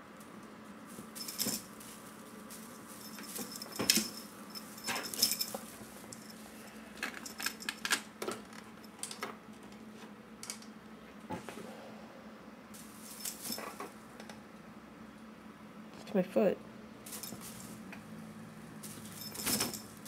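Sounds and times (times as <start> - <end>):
foil tinsel rustling: 0.8 - 6.6, 12.8 - 13.8, 17.1 - 17.9
small bell jingling: 1.1 - 6.5, 12.8 - 13.8, 17.1 - 17.8, 18.8 - 20.0.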